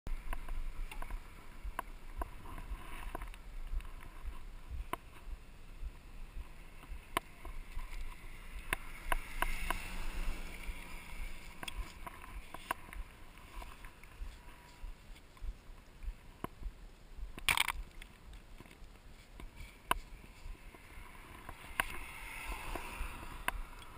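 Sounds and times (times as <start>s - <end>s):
wind rumble on microphone: 0.1s - 23.9s
bike clicks and rattles: 17.4s - 23.9s.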